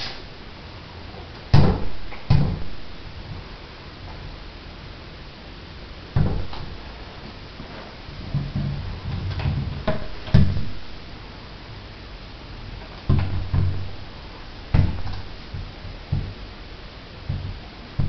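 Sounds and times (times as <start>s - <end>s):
ball knocking against door: 1.5s - 2.7s, 6.2s - 6.7s, 9.8s - 10.7s, 13.1s - 13.9s, 14.7s - 16.3s
ball rolling on hardwood floor: 14.8s - 16.4s.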